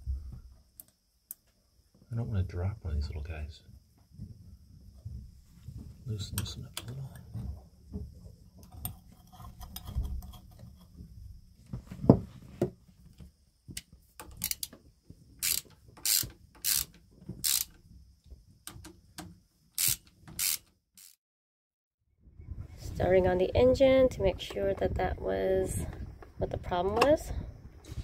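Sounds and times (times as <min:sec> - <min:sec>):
ratchet wrench clicking: 0:14.2 - 0:14.7, 0:15.4 - 0:17.8, 0:19.8 - 0:21.2.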